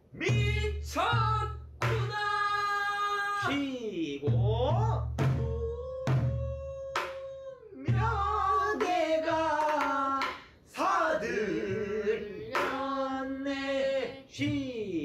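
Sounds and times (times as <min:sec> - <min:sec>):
person singing drawn-out phrases: 0:10.8 - 0:15.0.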